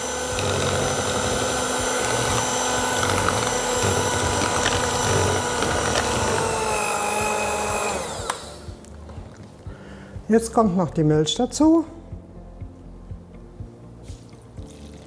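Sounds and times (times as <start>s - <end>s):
electric hand mixer running: 0.0s - 8.7s.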